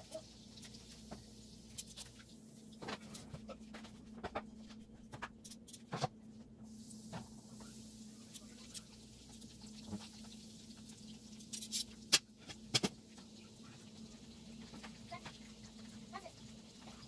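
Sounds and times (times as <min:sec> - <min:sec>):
chicken sizzling in oil: 0:06.7 - 0:12.3, 0:13.0 - 0:17.0.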